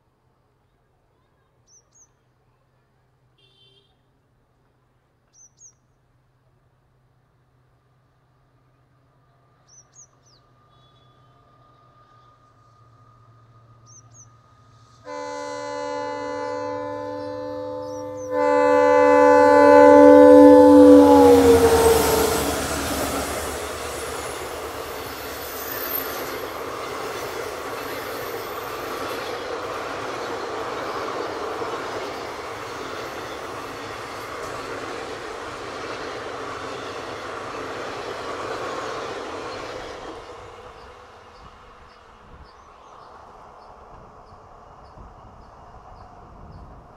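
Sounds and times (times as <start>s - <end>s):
train coaches rumbling past: 8.5s - 46.9s
train horn blasts: 10.7s - 11.6s, 15.0s - 26.6s.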